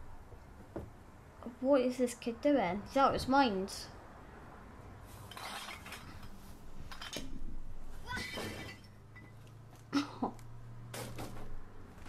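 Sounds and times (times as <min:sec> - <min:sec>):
bottles and cans clinking: 0:05.3 - 0:06.3.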